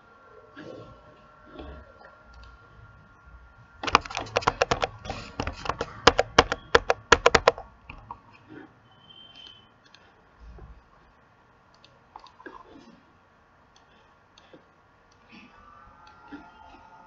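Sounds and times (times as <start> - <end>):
fast typing on keyboard: 3.8 - 7.7.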